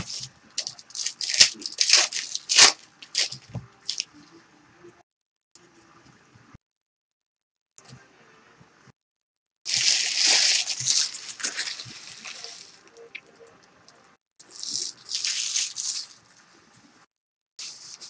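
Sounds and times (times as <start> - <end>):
foil wrappers crinkling: 0.0 - 4.1, 9.7 - 12.9, 14.6 - 16.2.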